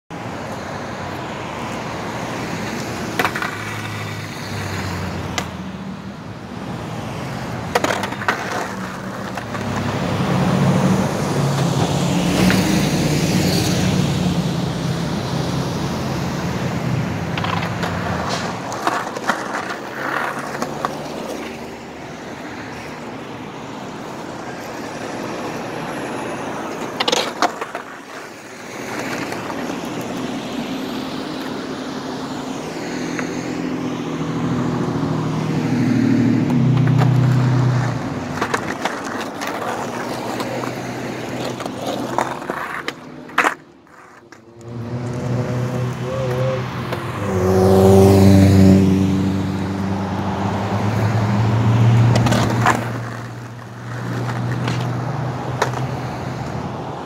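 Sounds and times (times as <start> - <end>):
road traffic passing: 0.1 - 57.0
skateboard clacking on concrete: 1.1 - 5.7, 7.2 - 10.2, 17.2 - 23.2, 24.0 - 30.3, 36.4 - 47.2, 52.0 - 56.6.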